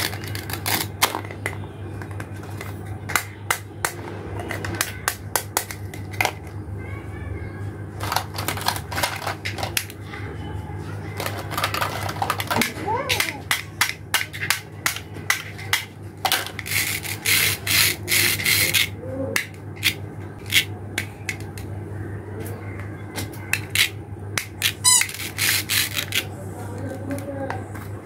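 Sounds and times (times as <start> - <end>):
plastic toy pieces clicking: 0.0 - 3.6, 8.0 - 10.0, 11.2 - 21.7, 23.6 - 26.3
plastic rasping rubs: 24.8 - 26.3.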